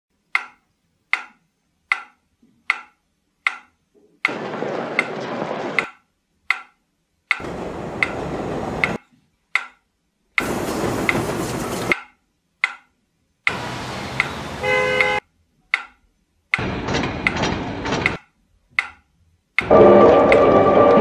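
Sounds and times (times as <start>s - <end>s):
sharp ticking: 0.3s - 4.4s
rushing noise: 4.3s - 5.8s, 7.4s - 9.0s, 10.4s - 12.0s, 13.5s - 14.8s, 19.6s - 21.0s.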